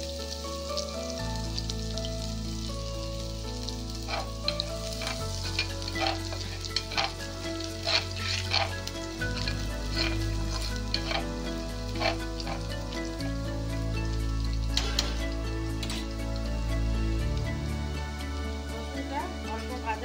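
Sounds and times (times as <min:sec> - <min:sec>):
background music chords: 0:00.0 - 0:20.0
garlic sizzling in oil: 0:00.0 - 0:20.0
spatula scraping pan: 0:04.0 - 0:13.4, 0:14.7 - 0:16.2.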